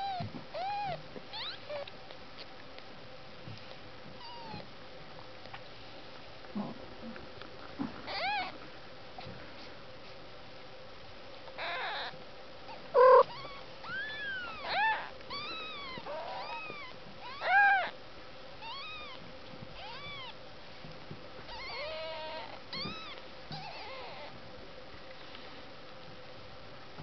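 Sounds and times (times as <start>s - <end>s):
kittens mewing: 0.0s - 1.9s, 8.1s - 8.6s, 11.6s - 12.1s, 12.7s - 17.9s, 21.5s - 24.4s.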